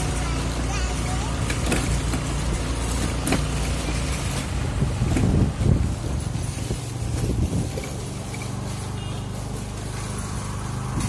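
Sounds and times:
motor scooter running: 0:00.0 - 0:11.0
wind buffeting microphone: 0:04.5 - 0:08.2.

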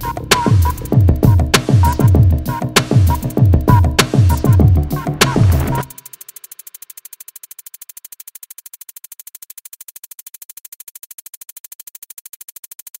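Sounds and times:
fast synthesizer pulse: 0:00.0 - 0:10.0.

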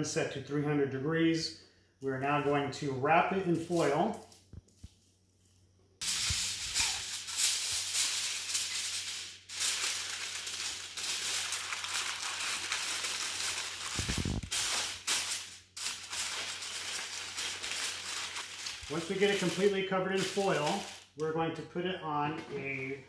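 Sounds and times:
aluminium foil crinkling: 0:03.6 - 0:21.2.

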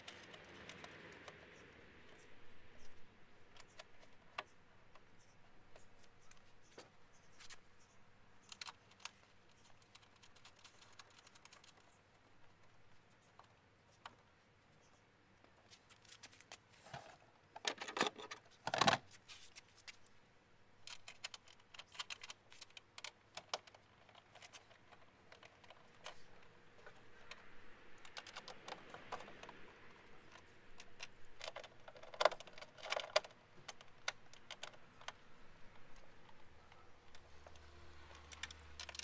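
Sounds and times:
plastic parts clicking and rattling: 0:00.0 - 0:01.6, 0:02.8 - 0:07.6, 0:08.4 - 0:14.4, 0:15.9 - 0:20.1, 0:20.8 - 0:39.0.

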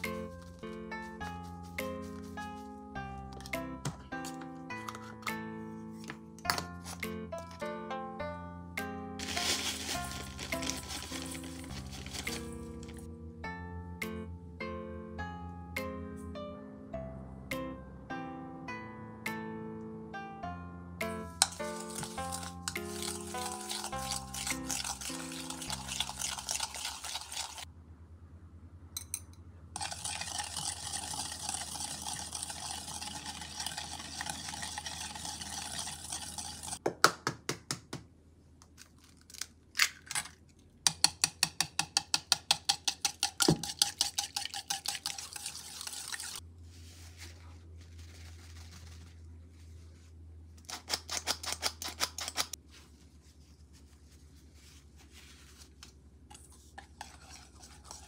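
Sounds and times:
batter stirred in steel bowl: 0:09.2 - 0:13.0, 0:21.2 - 0:27.7, 0:29.8 - 0:36.8, 0:41.0 - 0:46.4, 0:56.3 - 0:58.0
flour sifter squeezing: 0:09.2 - 0:13.0, 0:21.3 - 0:27.7, 0:29.8 - 0:36.8, 0:42.9 - 0:58.0
whisk strokes against bowl: 0:21.4 - 0:27.7, 0:29.8 - 0:36.8, 0:43.0 - 0:46.4, 0:56.3 - 0:58.0.

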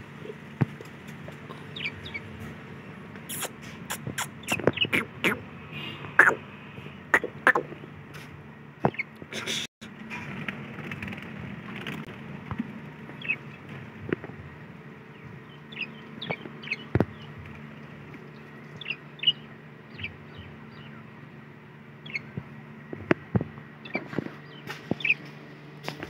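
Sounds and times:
steady low hum: 0:00.0 - 0:26.0
budgerigars chirping: 0:01.7 - 0:02.3, 0:03.3 - 0:05.4, 0:08.9 - 0:09.2, 0:13.2 - 0:13.4, 0:15.1 - 0:17.3, 0:18.7 - 0:21.0, 0:22.0 - 0:22.4, 0:23.8 - 0:25.2.

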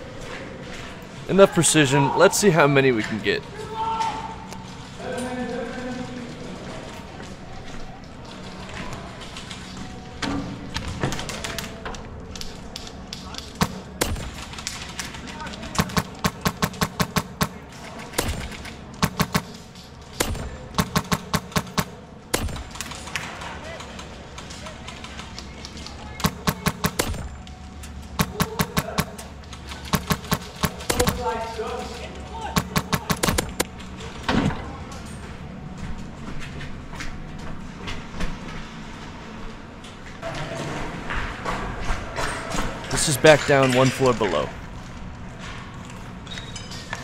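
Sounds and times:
airsoft rifle shots: 0:13.6 - 0:14.7, 0:15.7 - 0:19.6, 0:20.2 - 0:23.2, 0:26.2 - 0:27.4, 0:28.2 - 0:31.5, 0:32.5 - 0:33.7.

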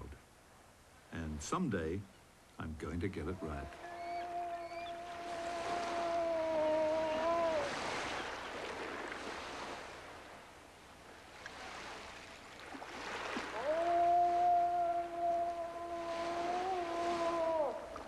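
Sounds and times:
surf washing: 0:02.7 - 0:18.0
man imitating moose call: 0:03.2 - 0:08.0, 0:13.6 - 0:18.0.

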